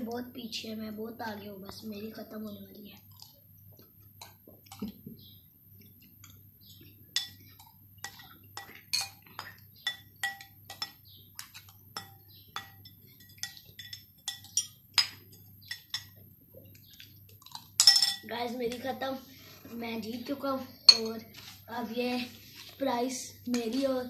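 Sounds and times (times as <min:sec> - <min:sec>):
spoon clinking on china bowl: 0:07.2 - 0:16.2, 0:17.4 - 0:18.8, 0:20.9 - 0:21.3.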